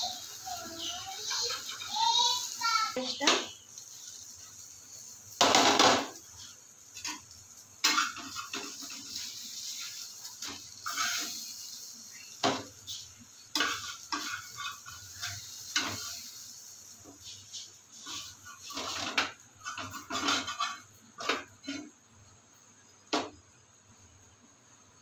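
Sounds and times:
metal spatula scraping frying pan: 0.0 - 22.0
hot oil sizzling: 0.0 - 25.0
plate clattering on stovetop: 5.4 - 6.2, 7.0 - 9.2, 18.6 - 21.9.

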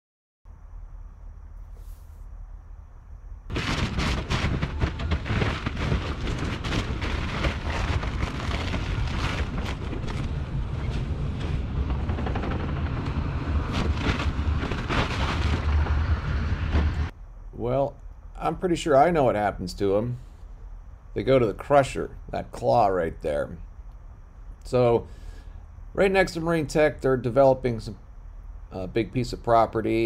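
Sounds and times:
diesel engine rumble: 1.7 - 30.0
fiberglass cracking and splintering: 3.5 - 16.8.

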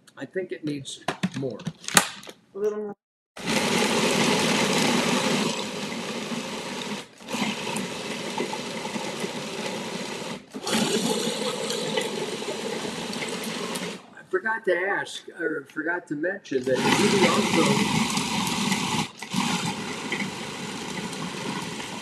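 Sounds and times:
food processor grinding: 3.4 - 14.1, 16.6 - 22.0.

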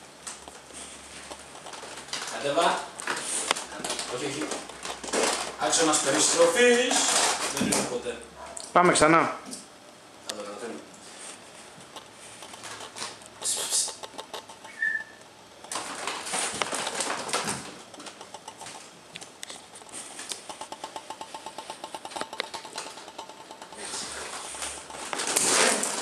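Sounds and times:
kitten claws scratching rug: 0.4 - 6.9, 11.1 - 15.0, 15.6 - 26.0
quick rhythmic rasps: 11.8 - 26.0
high squeak: 14.6 - 15.2.

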